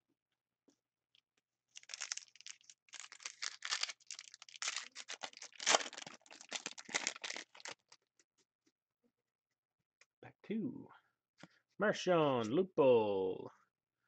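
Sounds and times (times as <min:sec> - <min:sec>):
foil wrapper crinkling: 0:01.7 - 0:08.0.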